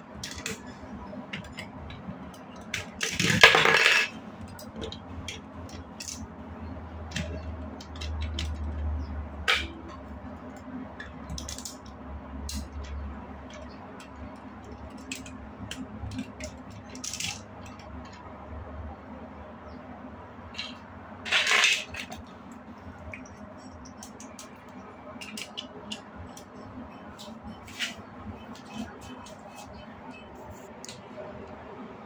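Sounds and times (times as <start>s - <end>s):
plastic blocks clicking together: 11.0s - 11.9s, 23.1s - 26.5s.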